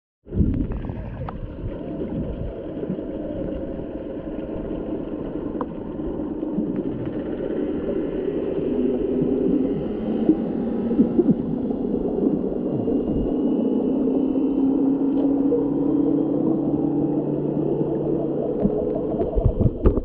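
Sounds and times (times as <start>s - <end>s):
muffled underwater rumble: 0.3s - 20.0s.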